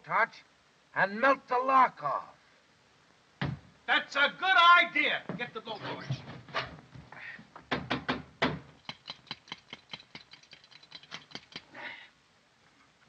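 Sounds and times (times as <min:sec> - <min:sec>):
blowtorch hand pump clicking: 0:08.8 - 0:11.7.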